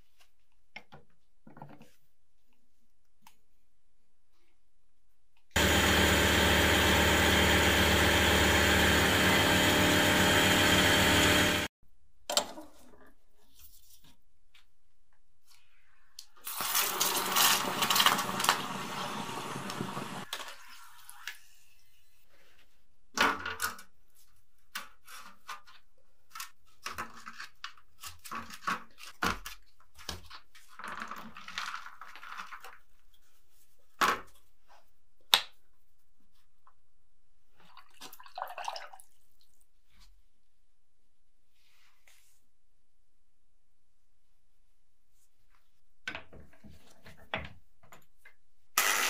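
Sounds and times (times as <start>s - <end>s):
hot flask sizzling in water: 16.4s - 20.3s
plaster scraping and crumbling: 25.0s - 33.2s.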